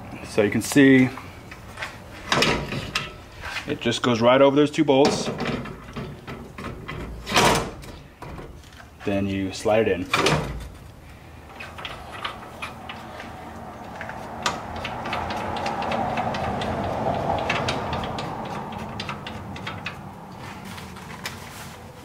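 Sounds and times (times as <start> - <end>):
background noise: 0.0 - 22.0
metal clicks and knocks: 1.5 - 3.2, 5.0 - 8.9, 10.1 - 20.4.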